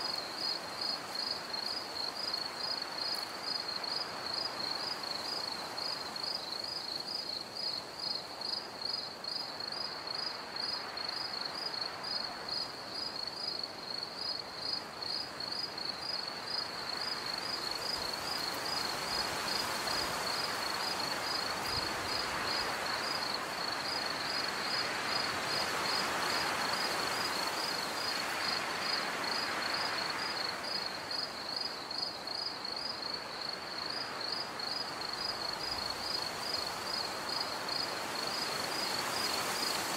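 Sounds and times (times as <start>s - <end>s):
crickets chirping: 0.0s - 39.9s.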